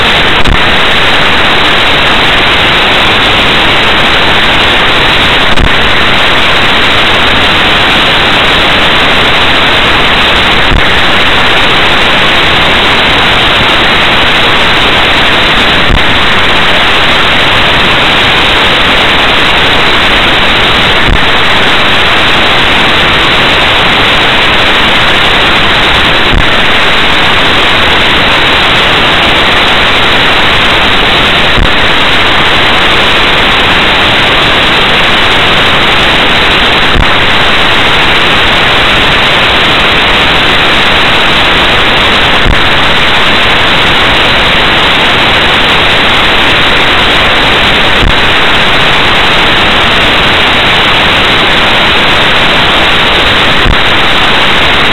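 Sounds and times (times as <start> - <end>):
static hiss: 0.0 - 54.9.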